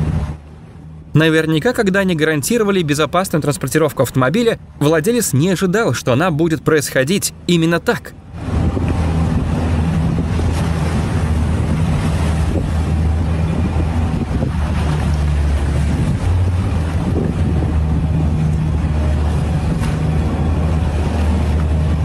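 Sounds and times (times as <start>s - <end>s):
boat motor droning: 0.0s - 22.0s
water splashing past hull: 0.0s - 22.0s
wind rushing over microphone: 8.1s - 22.0s.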